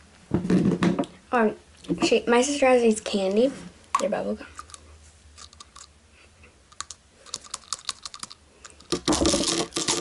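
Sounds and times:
plastic candy package clicking: 6.7 - 10.0
rustling and clatter: 7.3 - 10.0.

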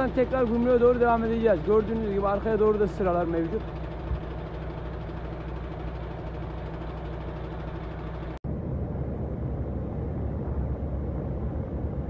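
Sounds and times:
truck engine idling: 0.0 - 8.4
truck engine and road noise in cab: 0.0 - 12.0.

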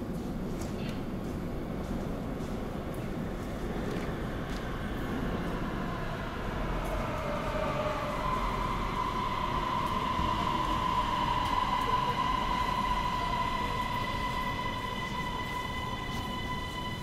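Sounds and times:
metro train rumbling with whine: 0.0 - 17.0.

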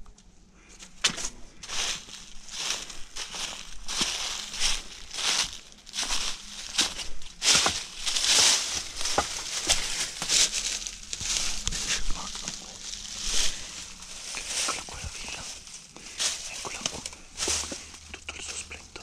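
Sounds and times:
twigs snapping underfoot: 0.8 - 19.0
footsteps crunching through dry leaves: 0.9 - 19.0.

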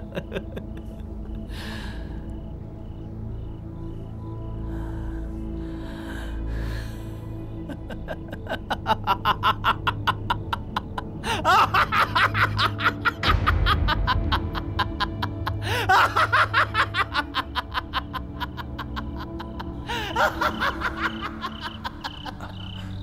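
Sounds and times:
man laughing hard: 0.0 - 1.4, 7.6 - 23.0
low background music: 0.0 - 23.0.

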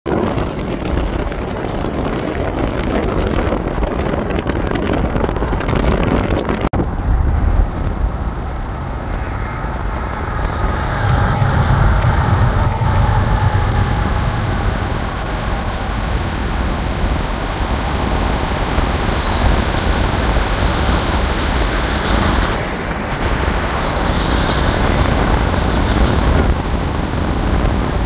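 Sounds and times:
car road and wind noise: 0.1 - 28.0
diesel locomotives rumbling past: 6.8 - 28.0.

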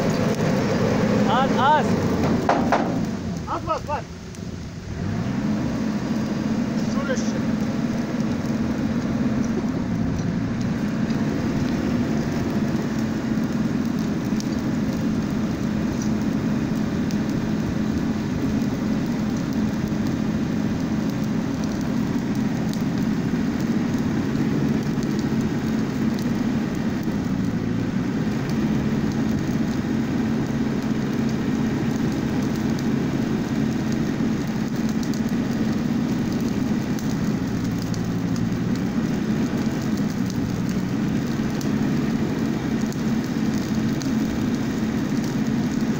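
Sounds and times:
exhaust blowing into fire: 0.0 - 45.9
faint fire crackles: 0.0 - 45.9
truck engine running: 0.0 - 45.9.

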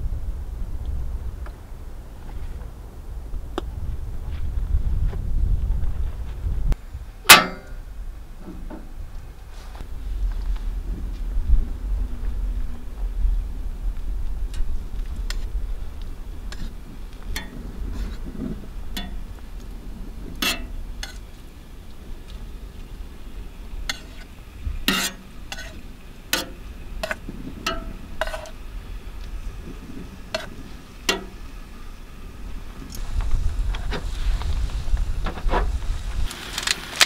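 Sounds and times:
low rumble: 0.0 - 36.3
chicken sizzling on griddle: 33.9 - 37.0.

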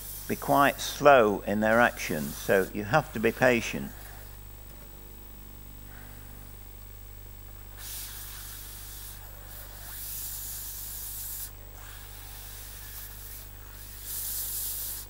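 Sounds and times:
steam gun hissing: 0.0 - 0.8, 7.8 - 15.0.

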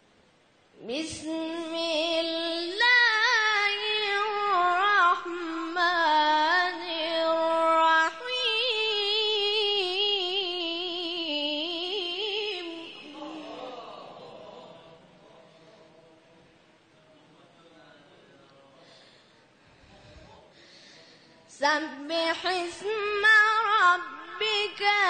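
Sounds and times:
person reciting melodically: 0.8 - 14.8, 21.5 - 25.0.

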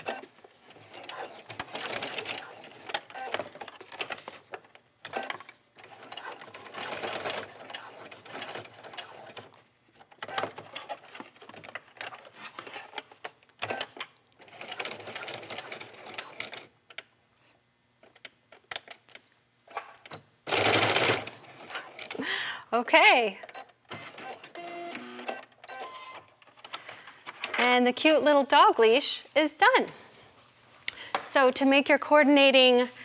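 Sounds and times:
sewing machine stitching: 0.0 - 4.3, 5.1 - 9.6, 13.6 - 16.7, 20.5 - 22.0.

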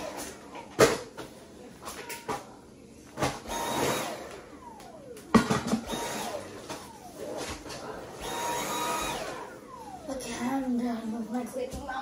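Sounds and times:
vacuum motor whirring: 0.0 - 0.5, 3.2 - 12.0.

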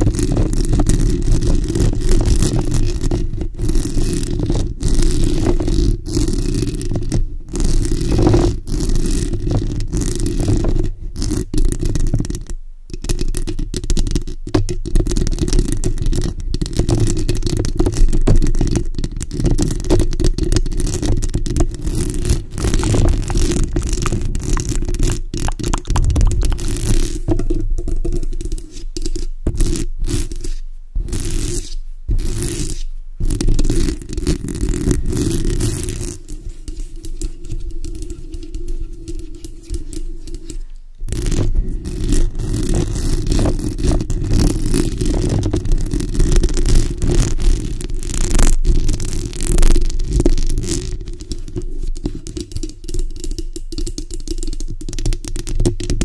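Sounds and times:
fingernails scratching microphone grille: 20.6 - 27.4, 28.4 - 47.7.

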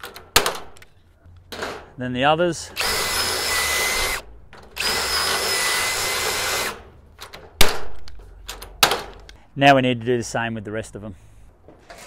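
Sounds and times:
cordless drill drilling metal: 2.8 - 4.2, 4.8 - 6.8.

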